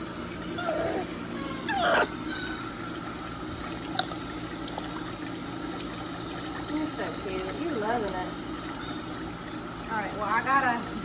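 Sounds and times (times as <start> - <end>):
bath tap running into tub: 0.0 - 11.0.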